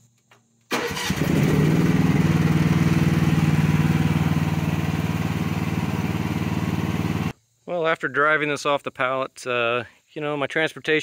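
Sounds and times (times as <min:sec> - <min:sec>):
small gasoline engine running: 0:00.8 - 0:07.3.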